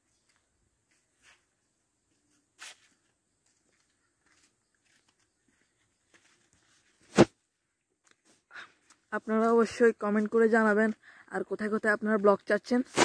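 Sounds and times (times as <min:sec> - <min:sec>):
short scuff: 0:02.6 - 0:03.0, 0:07.0 - 0:07.4.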